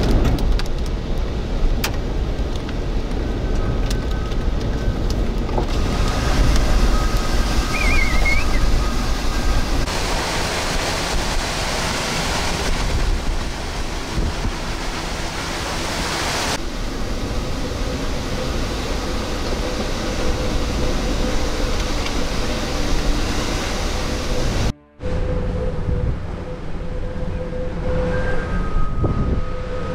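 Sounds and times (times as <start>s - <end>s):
rain: 0.0s - 24.7s
hurricane wind: 0.0s - 29.9s
wind buffeting microphone: 0.0s - 29.9s.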